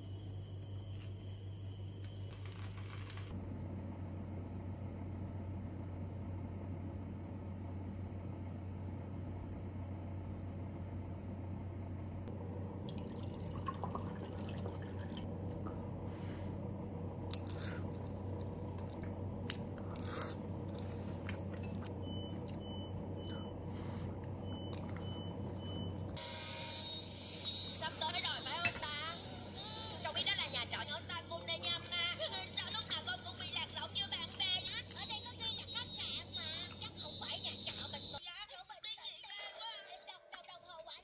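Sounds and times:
eating and chewing: 12.9s - 16.1s, 17.2s - 26.2s
spoon clinking and scraping bowl: 21.5s - 22.0s, 28.6s - 29.0s.

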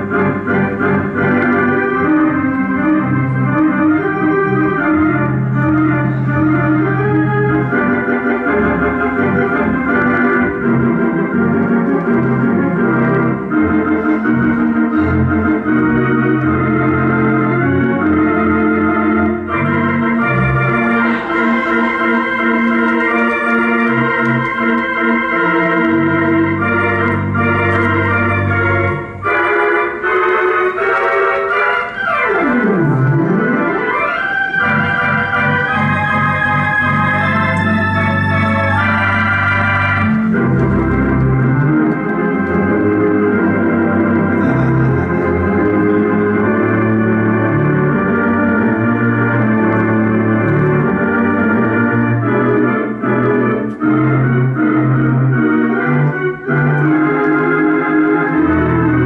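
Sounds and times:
organ sliding tone: 0.0s - 59.0s
theatre organ playing: 0.0s - 59.0s.

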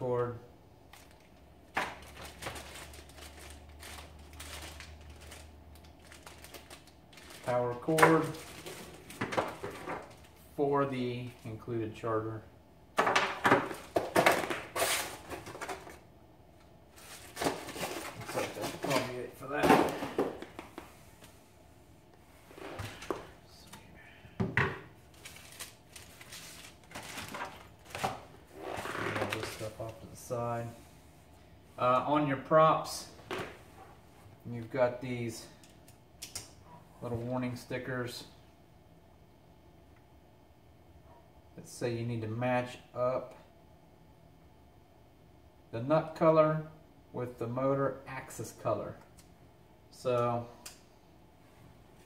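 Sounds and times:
low steady hum: 0.0s - 52.0s
plastic packaging crinkling: 0.9s - 10.4s, 25.0s - 28.3s
objects clattering: 6.0s - 10.3s, 13.0s - 16.0s, 17.0s - 20.9s, 24.4s - 29.7s.

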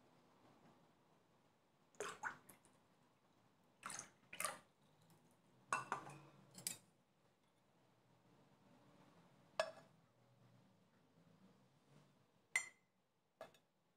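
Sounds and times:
milk splashing into saucepan: 2.0s - 2.7s, 3.8s - 4.7s.

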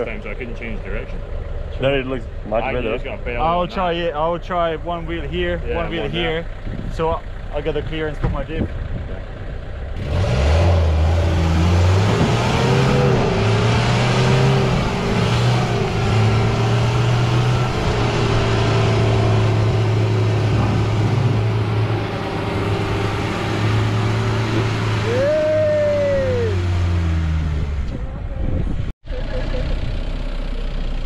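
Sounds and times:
truck engine revving under load: 8.7s - 28.0s.

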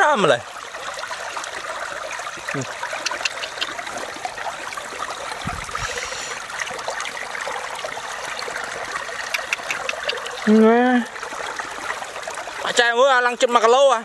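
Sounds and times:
trickle of running water: 0.0s - 14.0s
small clicks: 9.2s - 10.3s.

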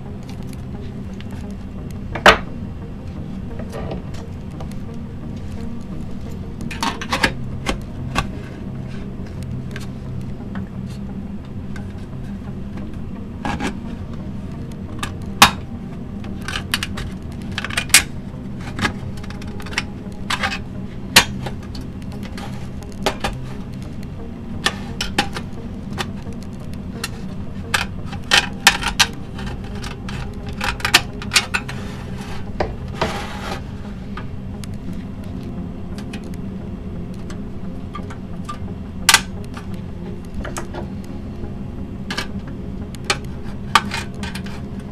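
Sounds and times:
low hum: 0.0s - 44.9s
metal scrape: 27.0s - 34.2s.

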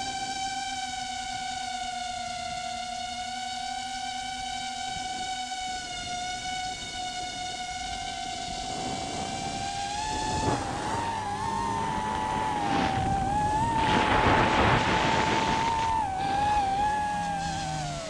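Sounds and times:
drone motors whining: 0.0s - 18.0s
rushing noise: 8.6s - 18.0s.

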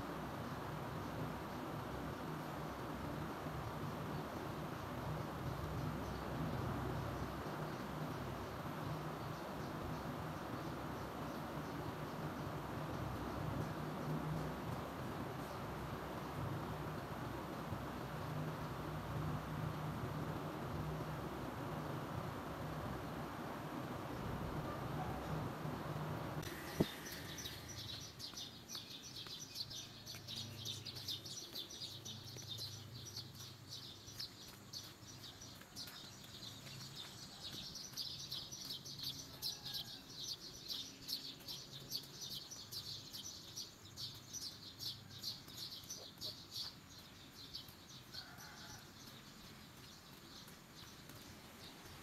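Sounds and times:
small birds chirping: 24.1s - 52.0s.

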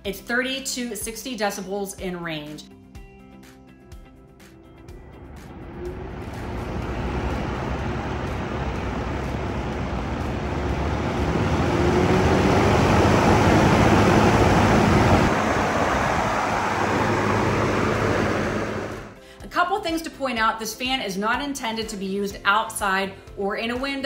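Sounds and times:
drum fan rushing air: 4.7s - 19.2s.

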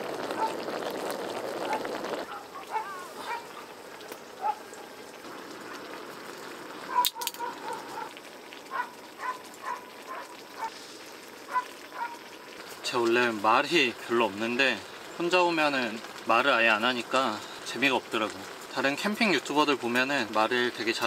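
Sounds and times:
liquor glugging into metal cup: 0.0s - 2.4s
stew sizzling on griddle: 0.0s - 21.0s.

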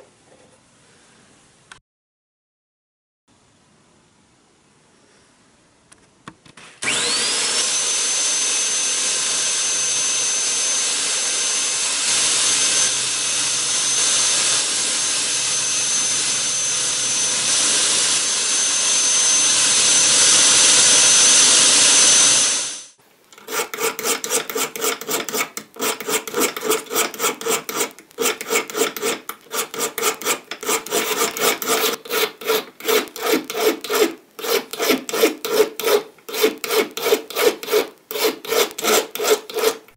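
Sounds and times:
powered wire wheel whining: 10.4s - 39.8s
hand file rasping on bolt: 23.4s - 39.9s.

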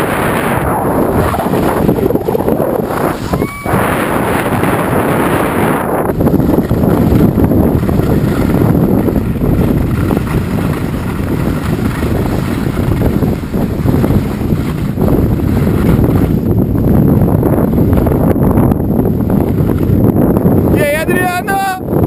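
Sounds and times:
wind rushing over microphone: 0.0s - 22.0s
skis sliding on packed snow: 0.2s - 16.6s.

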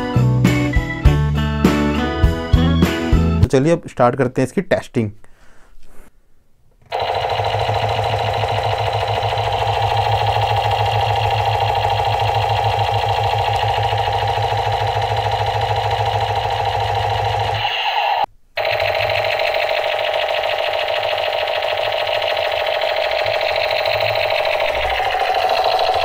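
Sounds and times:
toy machine gun rat-a-tat: 6.9s - 26.0s.

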